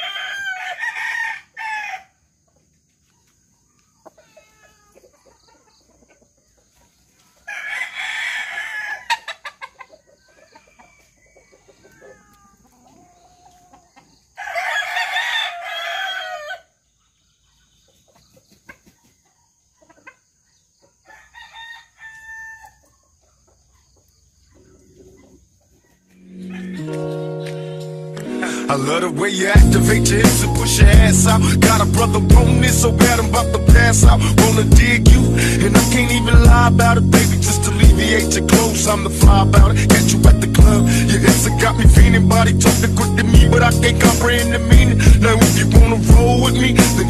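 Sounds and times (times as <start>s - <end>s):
roosters crowing: 0.0s - 2.3s, 7.3s - 16.8s, 21.0s - 22.9s, 26.0s - 27.3s, 28.4s - 47.0s.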